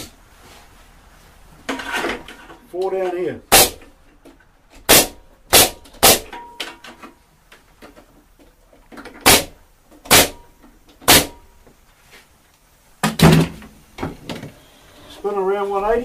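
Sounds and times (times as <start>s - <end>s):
pneumatic stapler shots: 3.5s - 3.8s, 4.9s - 6.3s, 9.2s - 10.4s, 11.0s - 11.4s.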